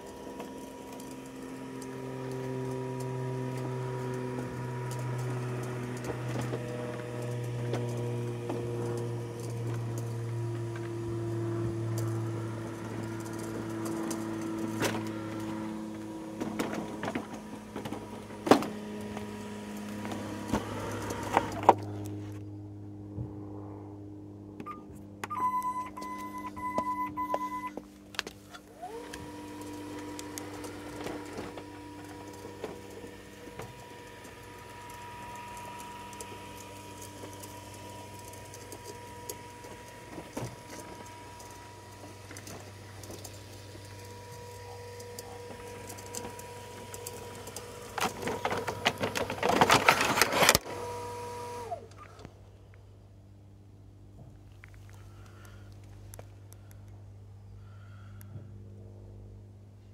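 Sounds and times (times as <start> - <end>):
robot lawnmower motors humming: 0.0 - 23.2, 23.9 - 52.3
mower beeping: 24.6 - 27.8.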